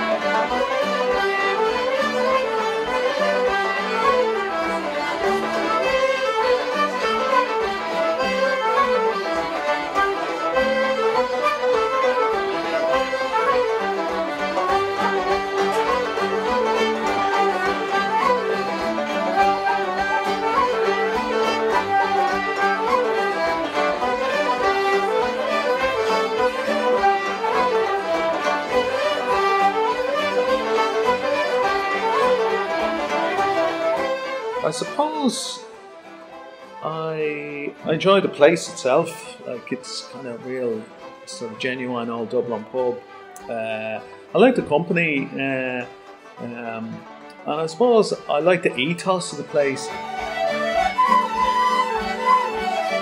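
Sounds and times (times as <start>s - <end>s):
banjo: 0.0s - 53.0s
fiddle: 0.0s - 53.0s
flute: 0.0s - 53.0s.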